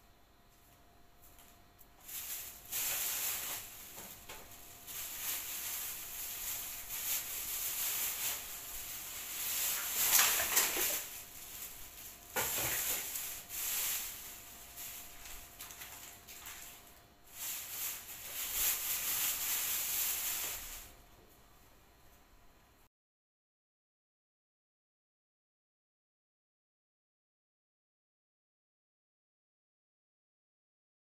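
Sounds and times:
kitten rustling on fabric bedding: 0:02.0 - 0:20.9.

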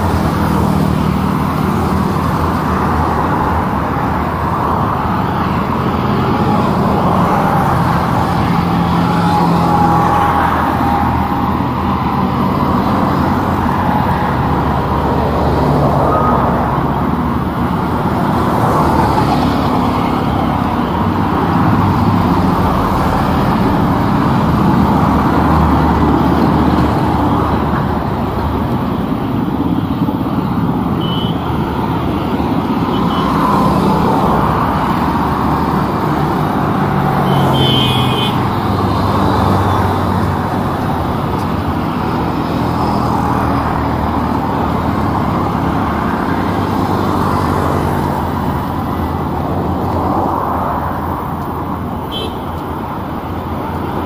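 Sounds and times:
road traffic passing: 0:00.0 - 0:54.0.

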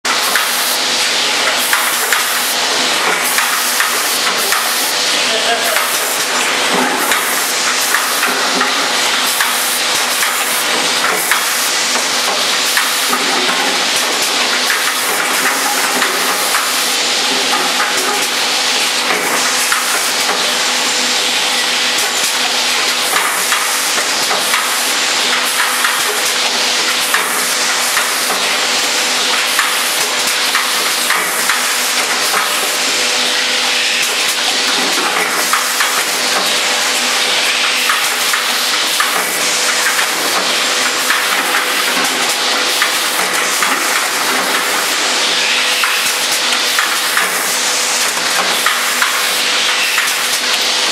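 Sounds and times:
machine hum and hiss: 0:00.1 - 0:50.9
glasses clattering on conveyor: 0:01.4 - 0:21.3, 0:34.0 - 0:50.9.

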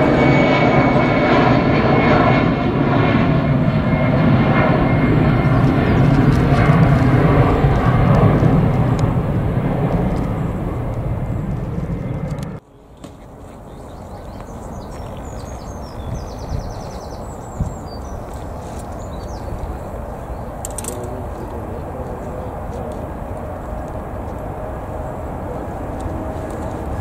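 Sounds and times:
jet engine roar: 0:00.0 - 0:27.0
low rumble: 0:02.9 - 0:12.6.

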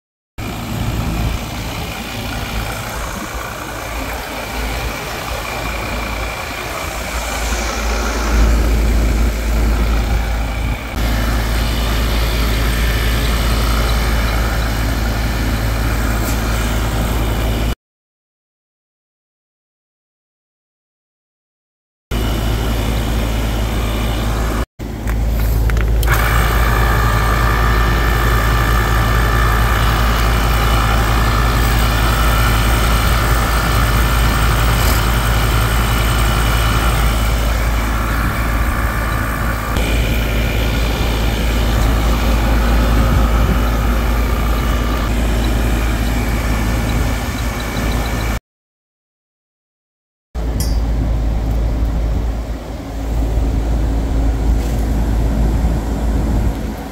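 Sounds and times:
heavy low rumble: 0:00.4 - 0:17.8, 0:22.1 - 0:48.4, 0:50.4 - 0:56.9
recovery machine whining: 0:00.4 - 0:17.8, 0:22.1 - 0:48.4.

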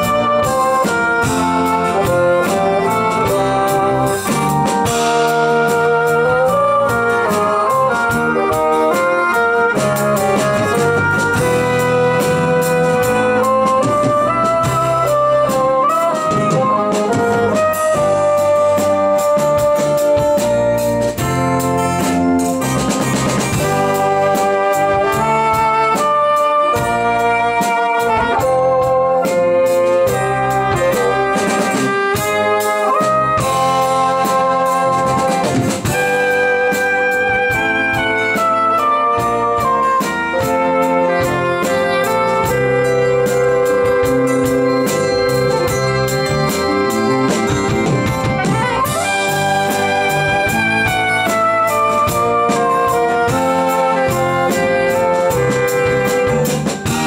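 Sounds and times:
bassoon melody: 0:00.0 - 0:57.0
drums: 0:00.0 - 0:57.0
electric bass guitar: 0:00.0 - 0:57.0
keyboards: 0:00.0 - 0:57.0.

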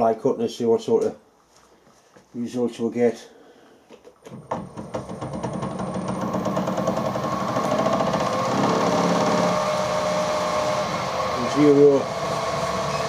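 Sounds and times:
milling machine spindle running: 0:04.7 - 0:13.0.

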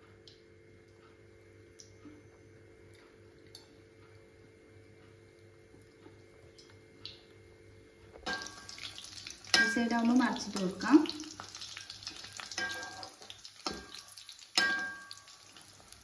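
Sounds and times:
faint steady hum: 0:00.0 - 0:16.0
soft ticks: 0:02.9 - 0:04.2, 0:04.9 - 0:07.2.

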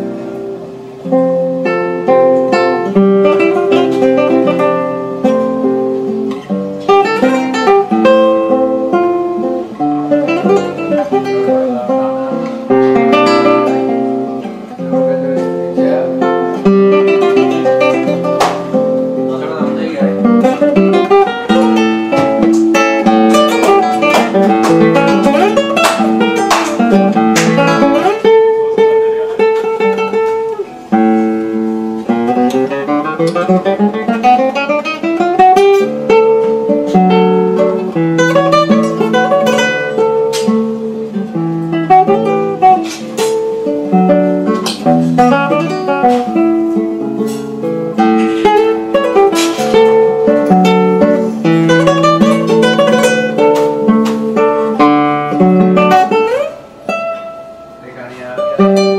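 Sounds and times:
classical guitar playing: 0:00.0 - 0:58.9.

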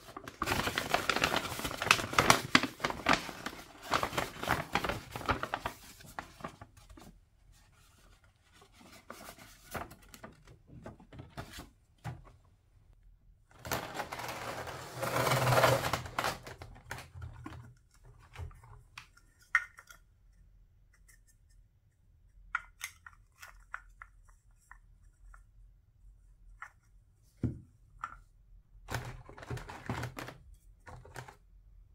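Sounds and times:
cardboard and paper rustling: 0:00.0 - 0:12.3, 0:13.5 - 0:18.8, 0:28.9 - 0:31.4.

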